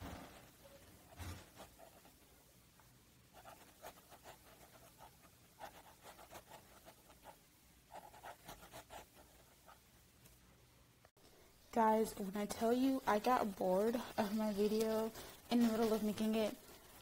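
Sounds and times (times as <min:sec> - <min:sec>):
pen scratching on paper: 0:01.4 - 0:02.1, 0:03.4 - 0:09.8, 0:14.0 - 0:16.4.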